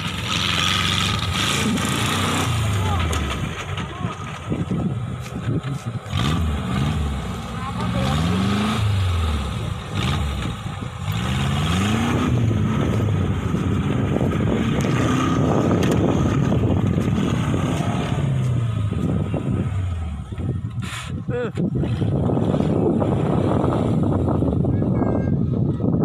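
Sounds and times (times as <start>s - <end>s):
buggy engine revving: 0.0s - 26.0s.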